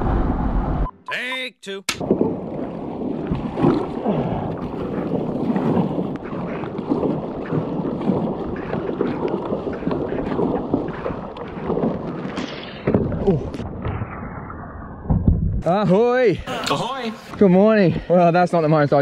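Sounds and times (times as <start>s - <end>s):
paddle strokes splashing: 2.0s - 13.6s
water washing against hull: 2.0s - 13.8s
wind buffeting microphone: 2.0s - 13.8s.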